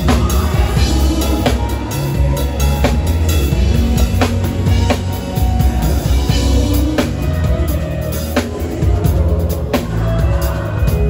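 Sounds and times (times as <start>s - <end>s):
drum kit playing: 0.0s - 11.0s
heavy bass: 0.0s - 11.0s.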